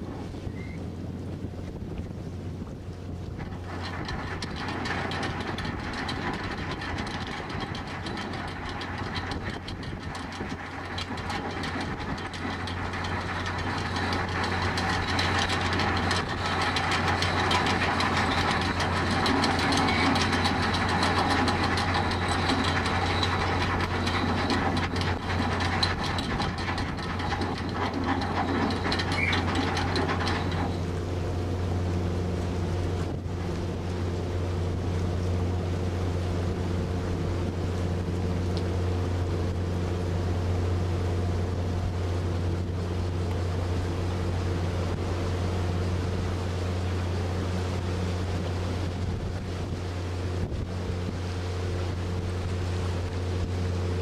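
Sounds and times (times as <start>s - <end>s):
ship engines humming: 2.3s - 54.0s
rushing water churn: 2.5s - 54.0s.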